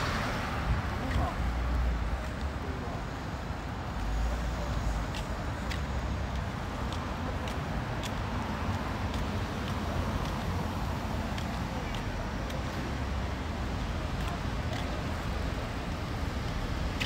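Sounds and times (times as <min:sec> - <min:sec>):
traffic noise: 0:00.0 - 0:17.0
light regular ticks: 0:04.7 - 0:10.6, 0:14.1 - 0:15.4.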